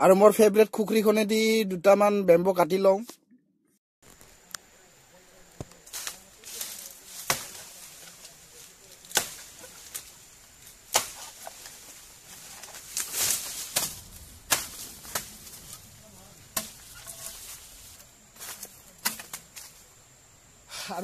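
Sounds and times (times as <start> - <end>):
blade chopping bamboo: 5.9 - 7.8, 9.0 - 10.1, 10.8 - 12.0, 12.6 - 15.7, 16.5 - 17.5, 18.4 - 19.6.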